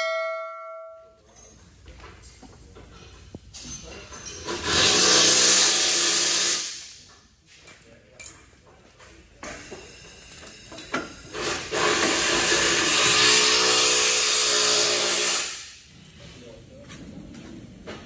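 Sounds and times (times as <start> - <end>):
loud rushing air hiss: 4.8 - 7.0.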